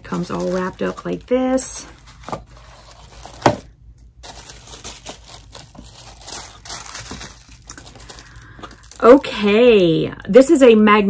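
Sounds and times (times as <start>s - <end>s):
wrapping snapping: 0.0s - 9.4s
paper crinkling and rustling: 0.0s - 9.6s.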